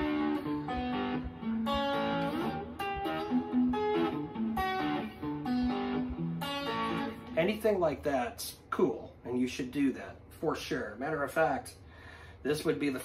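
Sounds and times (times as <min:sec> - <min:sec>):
electric guitar playing: 0:00.0 - 0:08.4.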